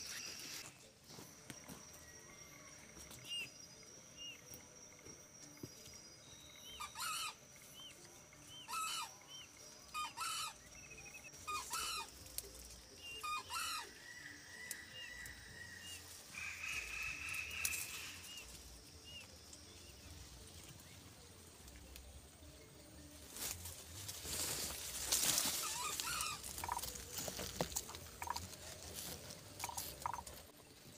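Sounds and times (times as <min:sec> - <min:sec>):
small birds chirping: 0:23.4 - 0:30.6.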